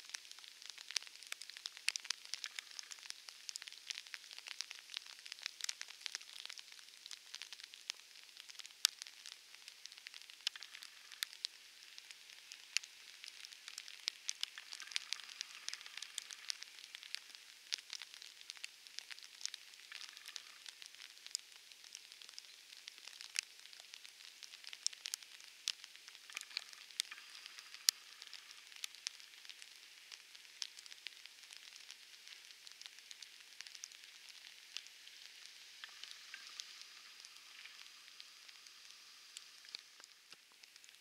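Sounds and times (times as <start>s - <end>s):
raindrops ticking: 0.0s - 41.0s
rain hissing: 9.2s - 20.9s, 26.2s - 41.0s.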